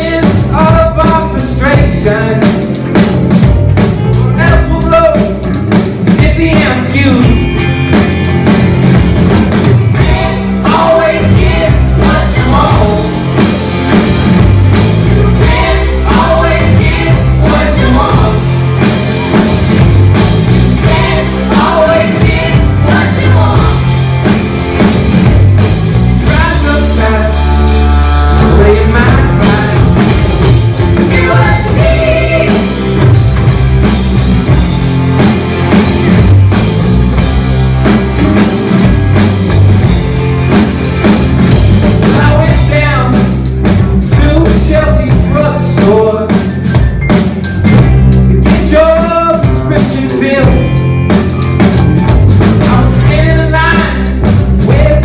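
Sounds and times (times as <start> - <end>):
bass and drum beat: 0.0 - 55.0
lead melody phrases: 0.0 - 55.0
live rock band playing: 0.0 - 55.0.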